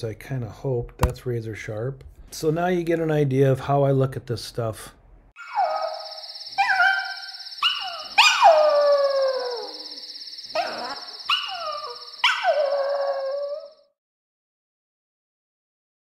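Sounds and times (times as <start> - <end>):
small dog howling: 5.4 - 13.8.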